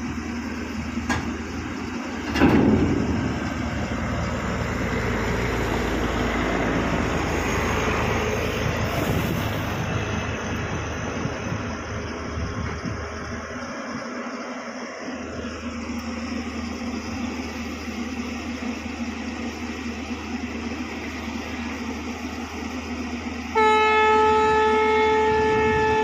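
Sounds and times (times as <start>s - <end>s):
heavy diesel machinery running: 0.0s - 26.0s
metal clank: 2.2s - 3.9s.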